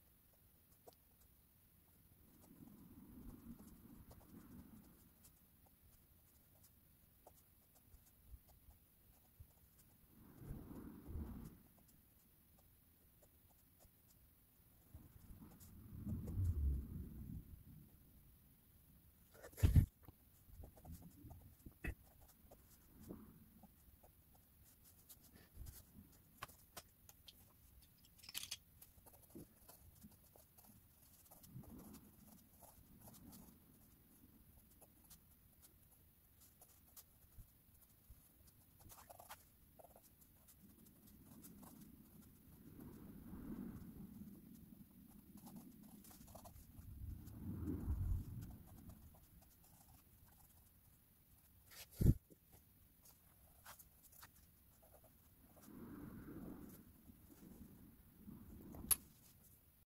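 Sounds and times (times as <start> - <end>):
pencil scratching on paper: 2.3 - 10.0, 19.2 - 43.0, 43.8 - 47.4, 48.0 - 55.7.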